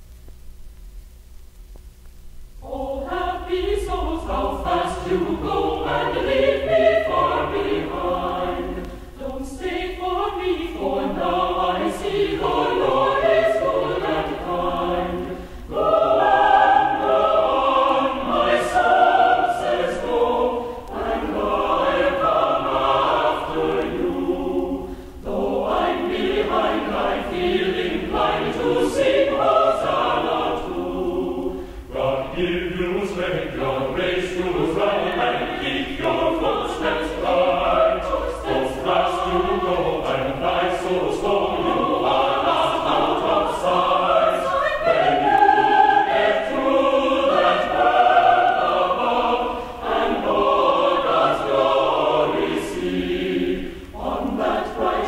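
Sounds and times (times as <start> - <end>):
faint clicks: 0.0 - 2.8, 8.8 - 9.1, 20.8 - 21.2
mixed choir singing a hymn: 2.6 - 55.0.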